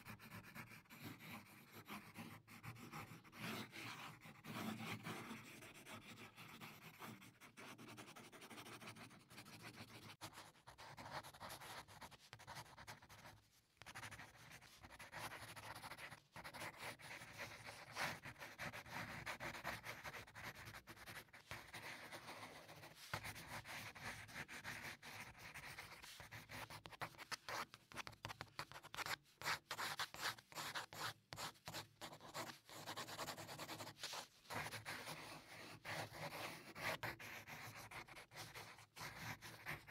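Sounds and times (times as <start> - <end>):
pencil scratching on paper: 0.0 - 39.9.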